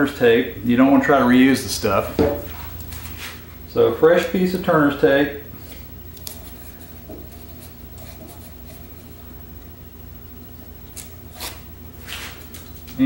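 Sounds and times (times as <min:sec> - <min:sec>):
steady low hum: 0:00.0 - 0:13.0
blade scraping tape: 0:06.2 - 0:09.0, 0:10.9 - 0:13.0
fingers rubbing tape onto wood: 0:06.2 - 0:09.2.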